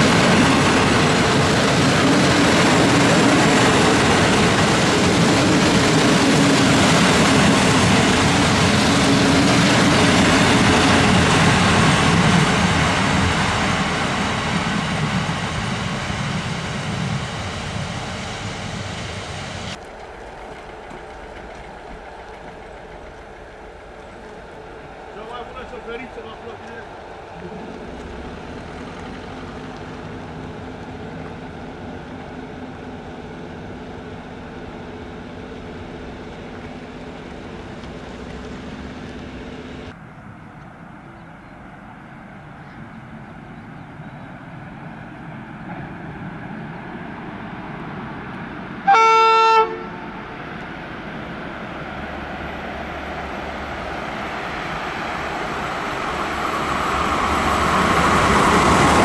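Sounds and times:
electric train running hum: 0.0 - 59.0
train rolling noise: 0.0 - 59.0
train horn blast: 48.8 - 50.3.

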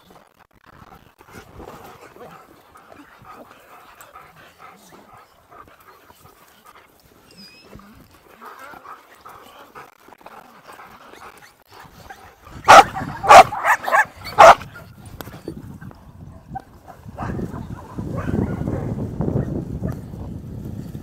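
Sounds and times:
dogs barking: 12.1 - 14.9, 16.5 - 19.0.

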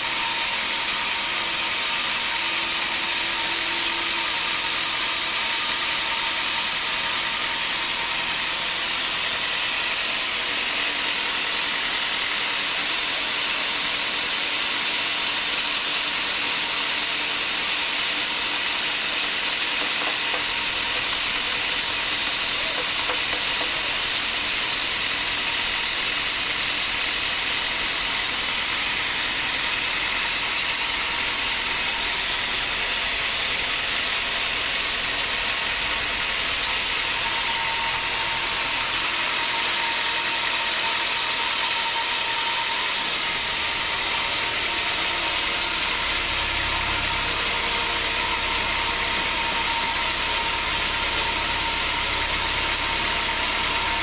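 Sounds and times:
band saw hiss and whine: 0.0 - 54.0
low hum: 44.0 - 54.0.

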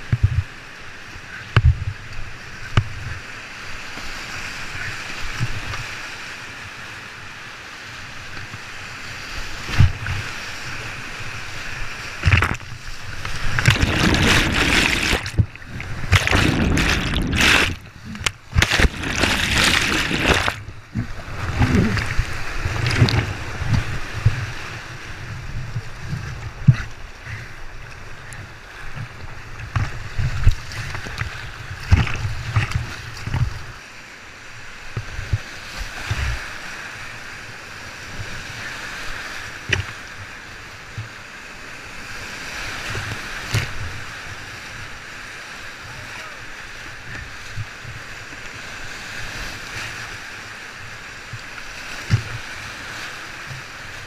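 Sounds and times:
water churning and splashing: 0.0 - 54.0
whitewater rapids rushing: 8.8 - 25.2.

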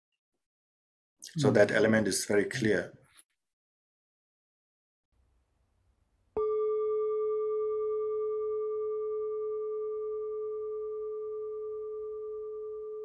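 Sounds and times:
bell-like chime ringing: 6.4 - 13.0.

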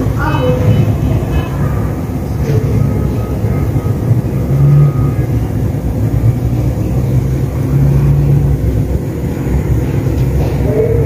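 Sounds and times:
low rumble: 0.0 - 11.0.

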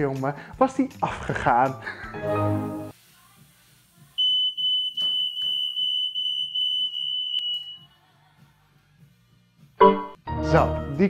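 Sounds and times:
smoke detector beeping: 4.2 - 8.0.

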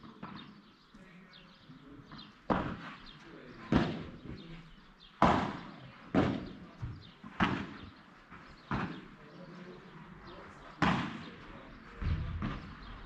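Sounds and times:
rackets hitting ball: 2.1 - 4.5, 5.1 - 9.2, 10.7 - 13.0.

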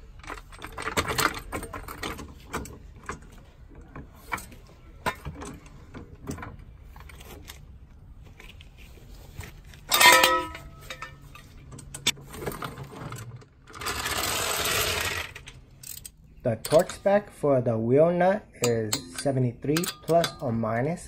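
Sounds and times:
metal jack stand clanging: 9.9 - 12.2, 15.0 - 17.2, 18.6 - 20.7.

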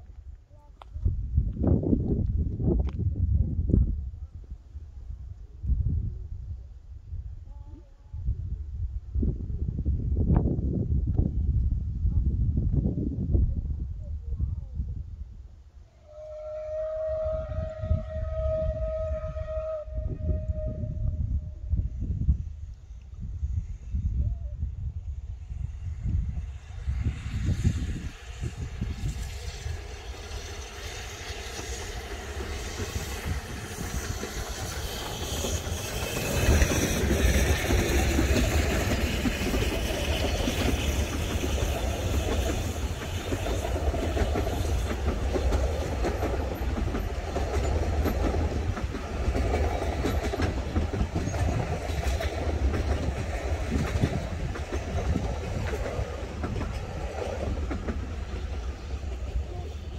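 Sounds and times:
steam locomotive passing: 15.9 - 59.9
wheels clicking over rail joints: 32.0 - 59.5.

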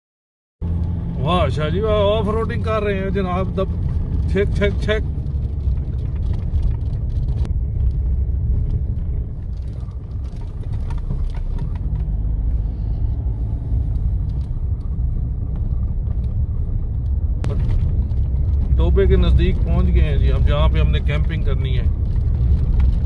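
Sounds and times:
engine and tyres rumbling: 0.6 - 23.0
short knocks and rattles: 9.4 - 12.3.

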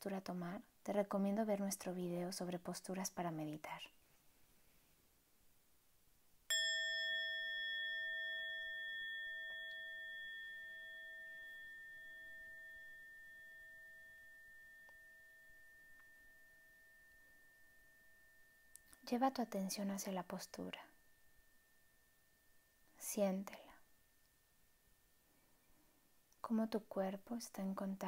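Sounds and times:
meditation bell ringing: 6.5 - 19.2, 20.8 - 23.0.

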